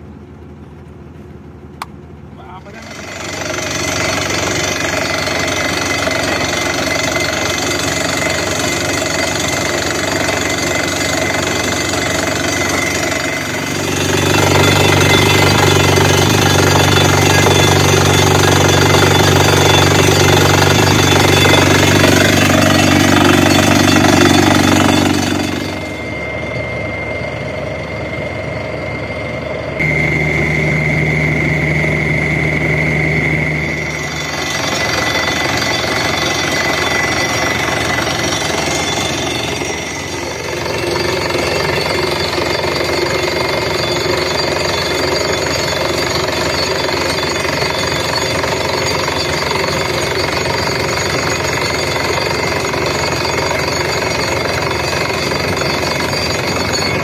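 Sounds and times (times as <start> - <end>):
air compressor running: 0.0 - 57.0
diesel engine running hard: 0.0 - 57.0
drilling rig air hammer: 2.6 - 27.6, 29.8 - 57.0.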